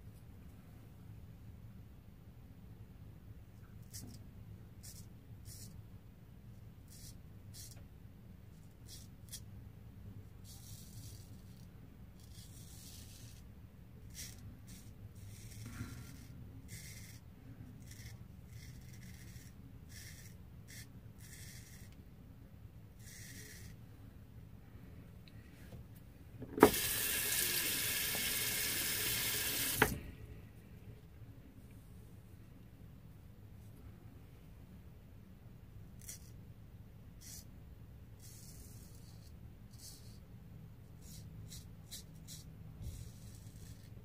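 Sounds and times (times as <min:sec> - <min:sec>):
razor scraping stubble: 0:17.8 - 0:22.0, 0:23.0 - 0:23.8
water tap running: 0:26.5 - 0:30.0.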